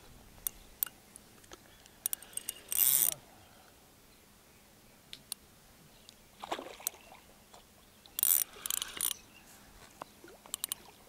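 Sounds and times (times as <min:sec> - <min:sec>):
water splashing: 0:06.4 - 0:07.7.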